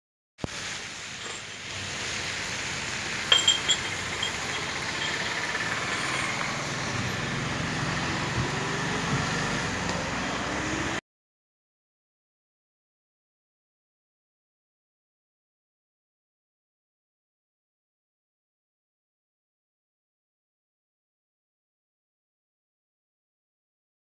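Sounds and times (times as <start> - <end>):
short sharp rattles: 1.2 - 1.9, 3.3 - 6.5
vehicle on wet road: 4.8 - 11.0.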